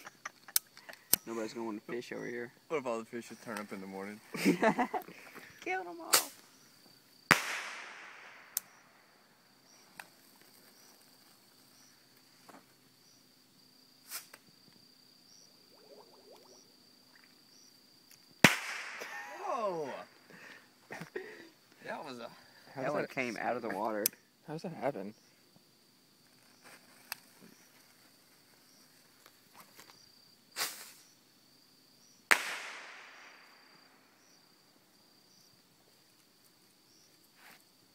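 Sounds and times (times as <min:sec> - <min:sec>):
night insects trilling: 0:00.0 - 0:37.9
firework hiss: 0:05.2 - 0:06.7, 0:07.3 - 0:09.1, 0:14.0 - 0:14.4, 0:30.5 - 0:31.2, 0:32.3 - 0:34.1
sharp crack: 0:06.1 - 0:06.4, 0:07.3 - 0:09.0, 0:18.4 - 0:19.8, 0:32.3 - 0:33.6
firework bang: 0:07.3 - 0:08.6, 0:18.4 - 0:19.2, 0:32.3 - 0:33.6.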